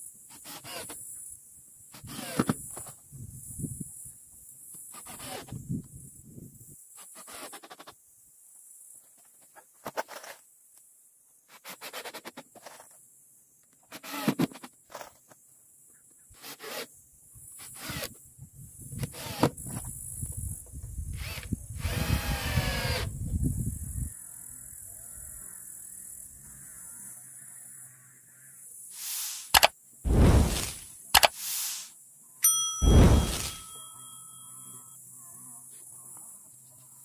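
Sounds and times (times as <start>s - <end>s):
grinding sound: 30.1s - 30.8s, 32.8s - 33.9s.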